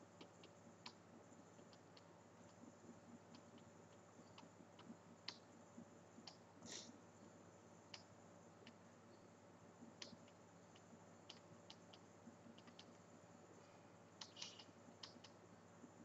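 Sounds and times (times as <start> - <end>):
low steady hum: 0.0 - 16.0
faint computer mouse clicks: 3.3 - 5.5, 9.9 - 13.0, 14.2 - 15.4.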